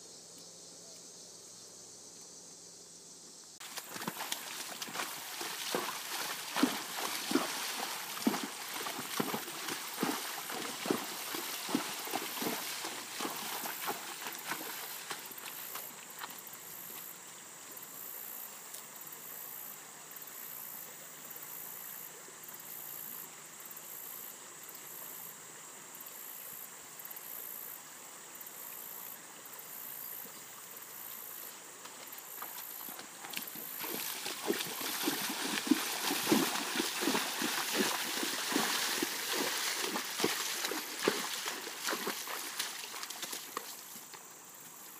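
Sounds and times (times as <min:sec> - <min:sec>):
creek trickling: 0:03.6 - 0:16.7, 0:30.5 - 0:44.9
hooves splashing in water: 0:03.6 - 0:17.1, 0:31.8 - 0:44.2.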